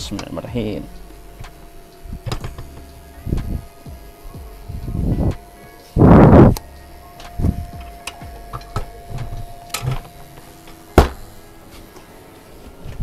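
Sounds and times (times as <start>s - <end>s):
chair parts scraping: 1.2s - 3.8s, 7.2s - 13.0s
chair parts clicking and knocking: 1.4s - 3.6s, 7.2s - 11.3s.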